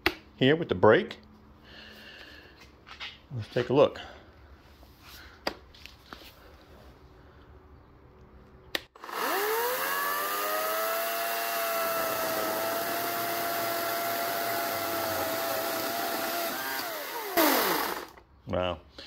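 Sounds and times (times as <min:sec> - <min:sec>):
electric chainsaw cutting wood: 0:09.0 - 0:18.2.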